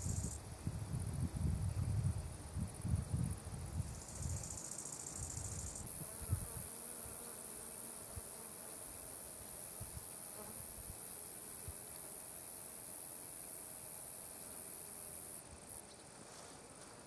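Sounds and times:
wind rumbling on microphone: 0.0 - 4.6
insects chorus: 0.0 - 17.0.

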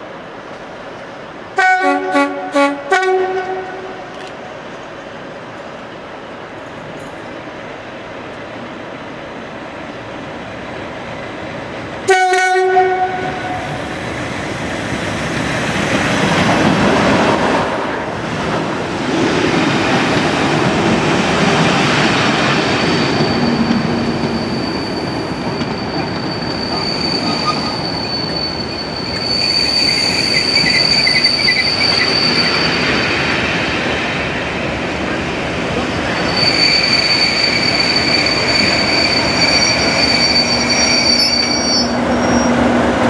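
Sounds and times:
locomotive horn blast: 1.6 - 4.1, 12.1 - 13.7.

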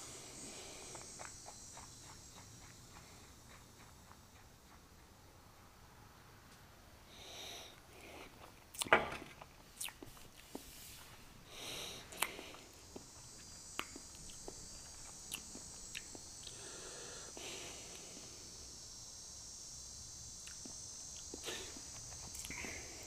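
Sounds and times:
high-pitched insect buzz: 0.0 - 4.7, 11.5 - 23.0.

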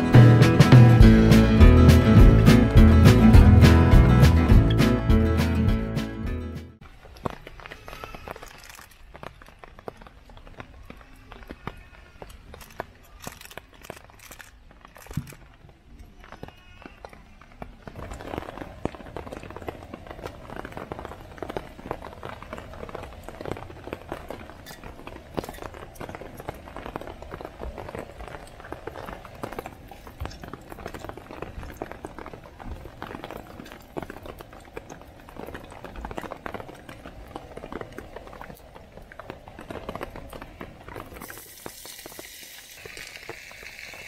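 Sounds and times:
spices sizzling in hot oil: 41.2 - 44.0.

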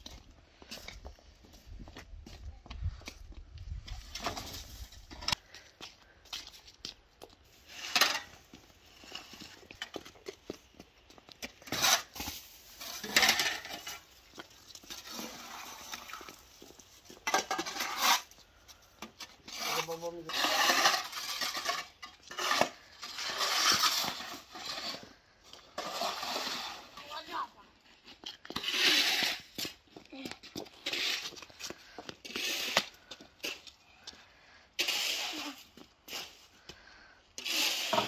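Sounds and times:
snow shovels scraping paving: 3.9 - 6.8, 7.4 - 38.0.

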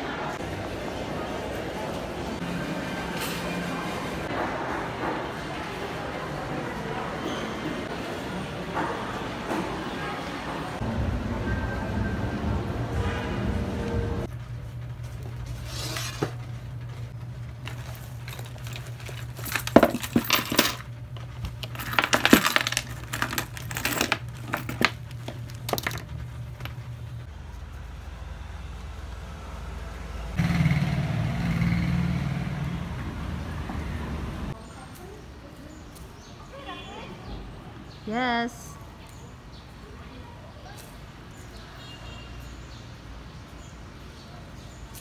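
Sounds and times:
small hard objects clinking onto desk: 17.7 - 20.8, 21.5 - 26.1.

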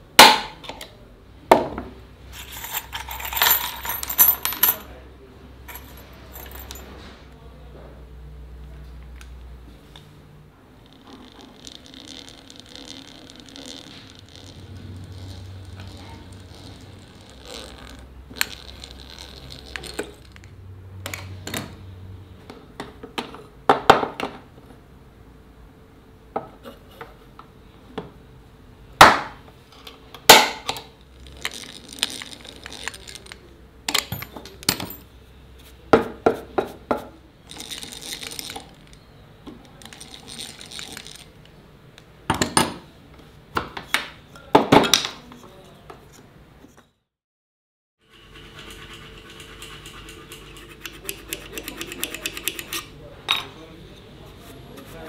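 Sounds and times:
metal tools clinking: 2.3 - 4.9, 5.7 - 6.9.

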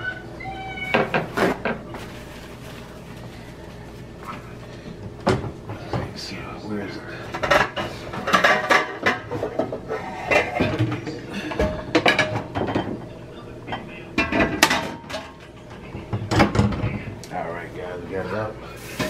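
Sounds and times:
pots and pans clattering: 7.3 - 17.2.

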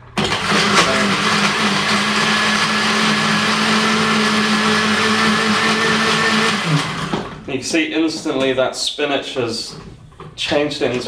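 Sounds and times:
blender running: 0.0 - 7.5.

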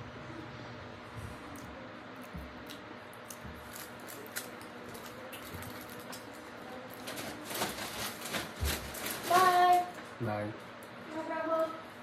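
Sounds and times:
foil crinkling: 3.6 - 10.0.

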